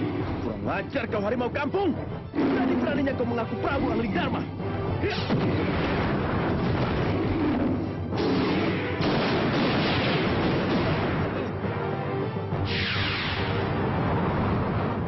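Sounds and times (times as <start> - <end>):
film score music: 0.0 - 15.0
loud rumbling explosion blasts: 2.4 - 3.0, 5.2 - 11.4, 12.5 - 15.0.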